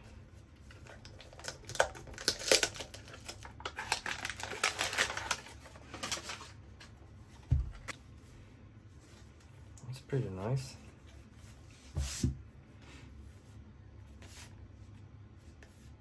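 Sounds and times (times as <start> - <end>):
paper wrapping crackling: 0.7 - 6.9.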